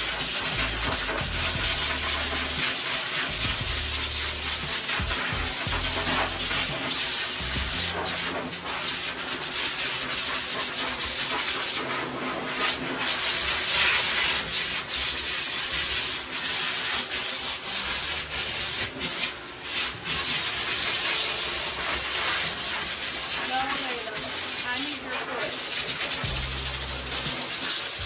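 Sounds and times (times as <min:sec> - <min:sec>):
hands scrubbing lather: 0:00.0 - 0:28.0
water from hose sprayer: 0:00.0 - 0:28.0.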